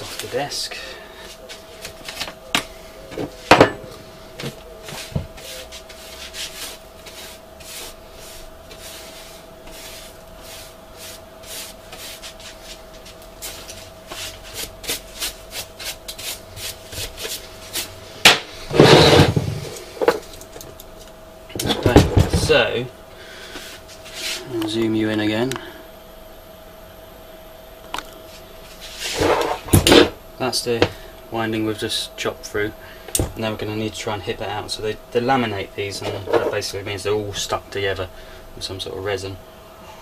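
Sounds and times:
knocks on workbench: 3.5s - 3.8s
brush sweeping on workbench: 4.8s - 17.9s, 23.6s - 24.5s, 28.3s - 29.6s.

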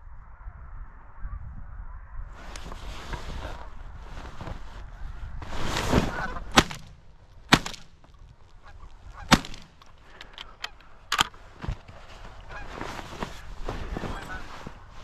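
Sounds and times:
geese honking: 6.0s - 6.8s, 8.6s - 11.0s, 12.4s - 14.9s
shotgun shots: 6.5s - 7.9s, 9.3s - 9.8s.

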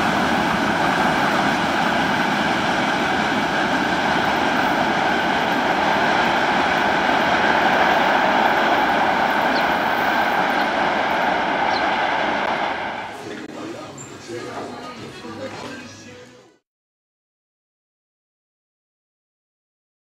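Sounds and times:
train wheels rolling on rails: 0.0s - 15.9s.

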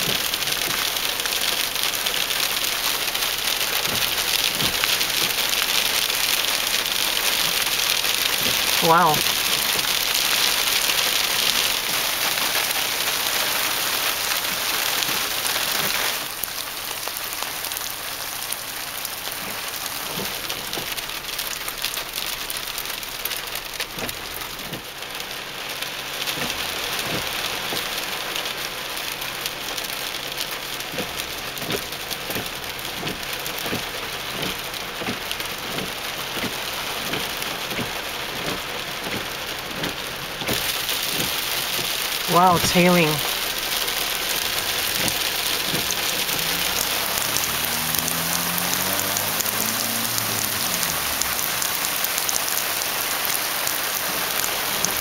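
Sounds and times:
rain and hail on car roof: 0.0s - 55.0s.

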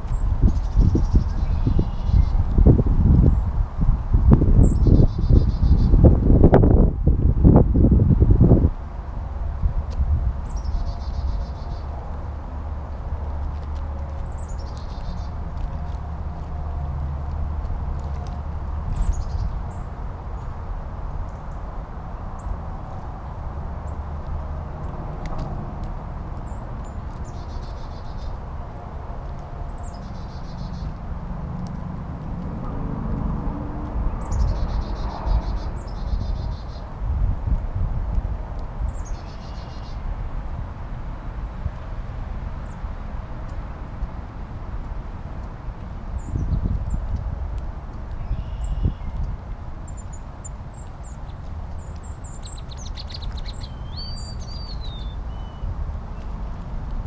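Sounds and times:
songbird singing trills: 0.0s - 3.4s, 10.4s - 12.0s, 14.2s - 15.9s, 26.4s - 28.4s, 29.6s - 31.0s, 34.1s - 36.9s, 38.8s - 40.0s, 48.2s - 55.7s
songbirds chipping: 0.0s - 3.7s, 4.6s - 6.6s, 9.0s - 37.6s, 38.5s - 40.2s, 42.6s - 57.0s
bird whistled gliding call: 48.2s - 49.2s.

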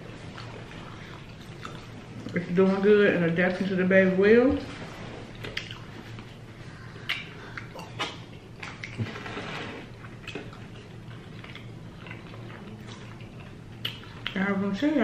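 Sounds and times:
chewing and crunching tacos: 0.0s - 2.4s, 5.3s - 14.5s.

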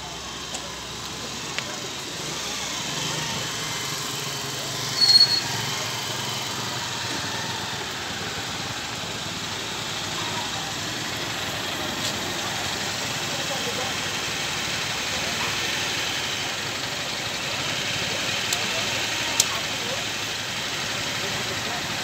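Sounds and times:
street noise: 0.0s - 22.0s
vehicle engine idling: 0.0s - 22.0s
sharp high-pitched squeak: 4.8s - 5.8s.

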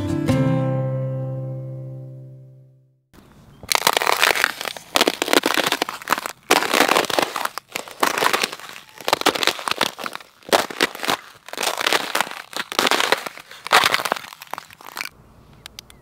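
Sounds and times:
boots cracking thin ice: 3.7s - 15.1s.

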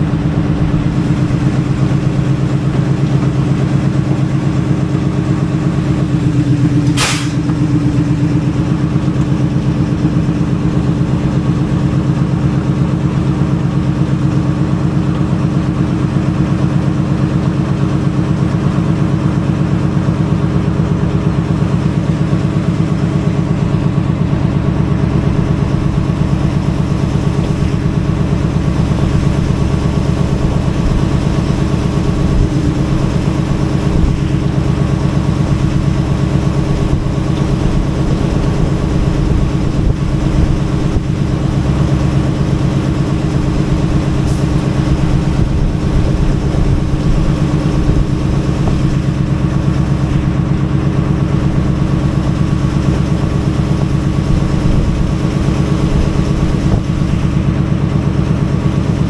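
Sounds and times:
diesel locomotive engine running: 0.0s - 59.0s
brief sharp noise: 6.8s - 7.6s.

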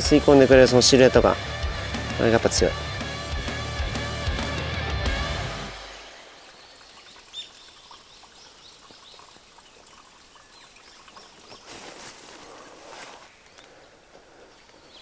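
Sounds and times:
small birds chirping: 6.0s - 15.0s
footsteps through grass: 11.4s - 14.8s.

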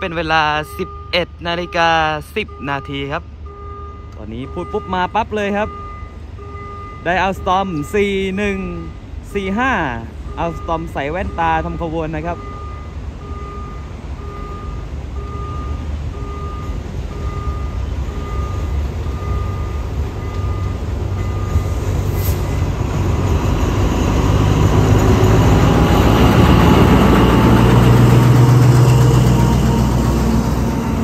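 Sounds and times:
locomotive engine drone: 0.0s - 31.0s
level crossing two-tone beeps: 10.3s - 21.7s.

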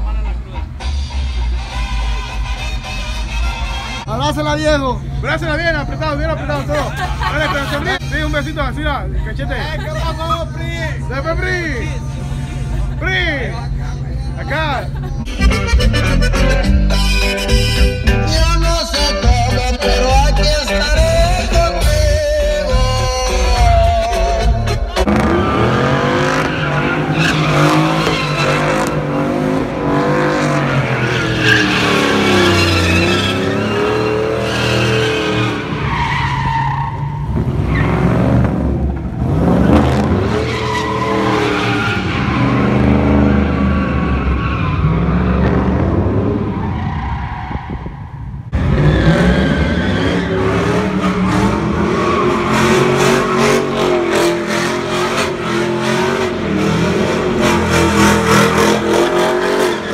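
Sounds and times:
truck engine revving: 0.0s - 59.9s
tires squealing on asphalt: 0.7s - 15.0s, 22.6s - 59.9s.

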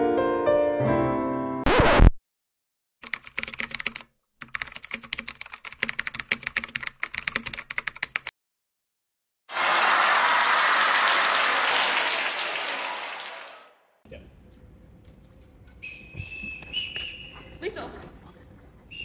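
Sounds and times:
rapid keyboard typing: 3.0s - 8.3s
crowd applause: 9.5s - 13.8s.

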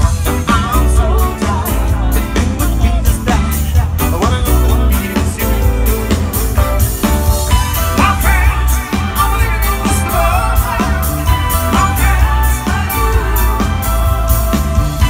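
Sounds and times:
person singing: 0.0s - 6.5s, 7.6s - 15.0s
drums: 0.0s - 15.0s
heavy bass: 0.0s - 15.0s
live band amplified music: 0.0s - 15.0s.

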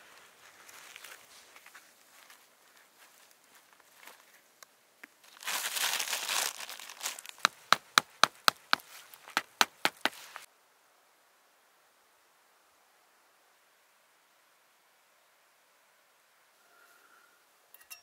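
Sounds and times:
dry leaves and tarp crinkling: 0.0s - 4.6s, 5.2s - 10.5s
sharp taps: 7.4s - 10.4s.

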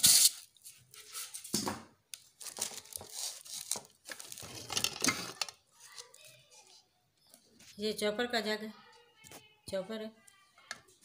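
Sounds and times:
plastic wrapping crinkling: 2.2s - 6.4s.

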